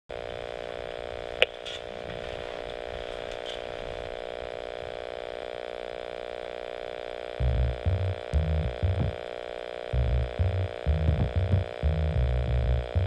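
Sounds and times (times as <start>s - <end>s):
steady multi-tone hum: 0.1s - 13.0s.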